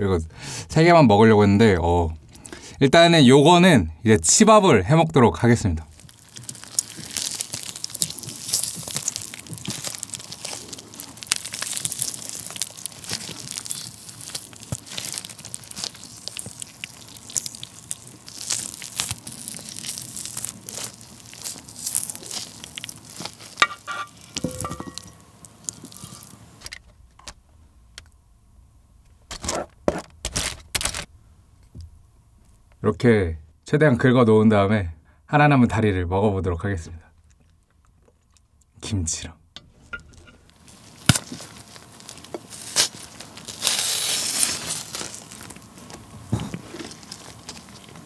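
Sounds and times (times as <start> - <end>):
chicken skin and meat tearing: 5.9 - 26.7, 40.5 - 48.0
chopsticks scraping sauce: 23.3 - 25.0.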